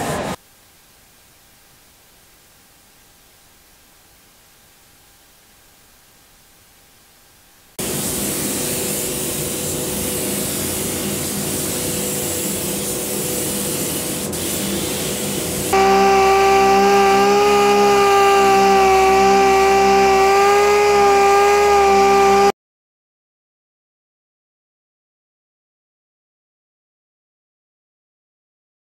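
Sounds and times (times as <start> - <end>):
compressed air hiss: 7.8 - 22.5
power sander whining: 15.7 - 22.5.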